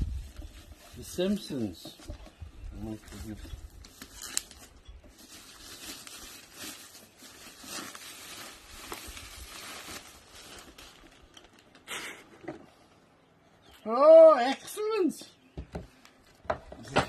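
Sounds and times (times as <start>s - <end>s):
plastic packaging crinkling: 3.2s - 11.9s.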